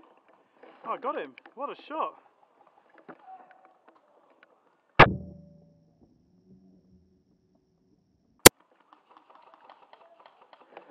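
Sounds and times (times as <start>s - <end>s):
airsoft rifle shot: 5.0s - 5.6s.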